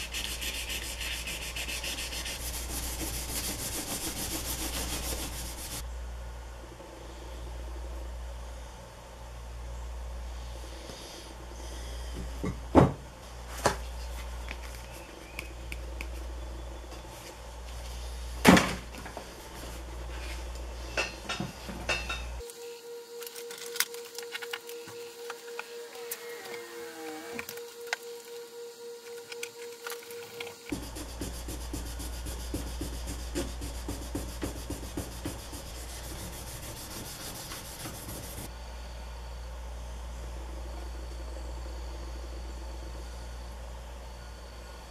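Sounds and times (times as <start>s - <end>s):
metal file scrubbed by hand: 0.0s - 5.8s
steady low hum: 0.0s - 44.9s.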